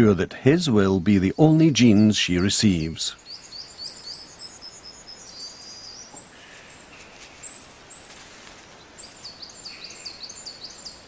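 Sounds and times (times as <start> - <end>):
faint outdoor hiss: 0.0 - 11.0
songbirds chirping and whistling: 1.6 - 11.0.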